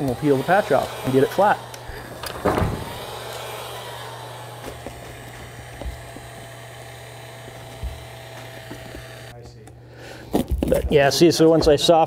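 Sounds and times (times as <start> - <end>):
heat gun blowing hot air: 0.0 - 9.3.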